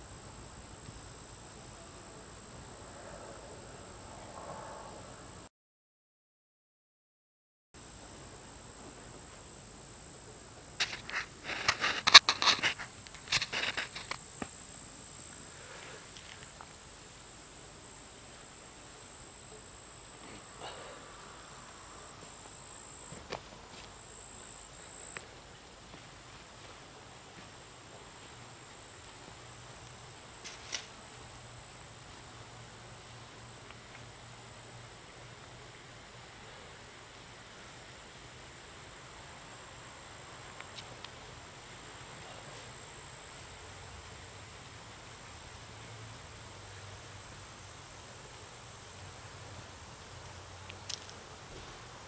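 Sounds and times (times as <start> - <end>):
faint high-pitched whine: 0.0 - 5.5, 7.8 - 52.0
crackling rustles and clicks: 10.8 - 14.6, 50.2 - 51.7.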